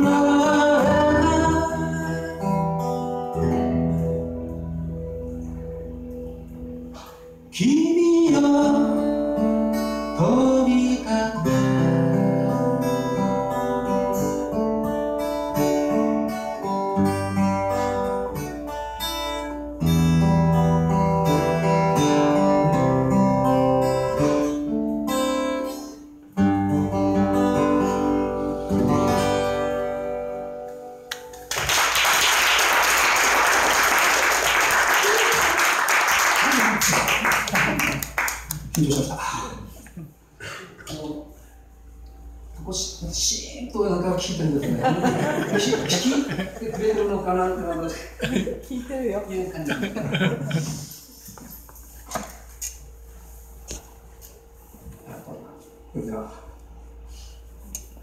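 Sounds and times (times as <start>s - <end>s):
man singing: 0.0s - 2.7s, 7.5s - 9.3s, 10.1s - 13.3s
acoustic guitar: 0.0s - 43.4s, 44.1s - 58.0s
audience applause: 31.1s - 39.0s.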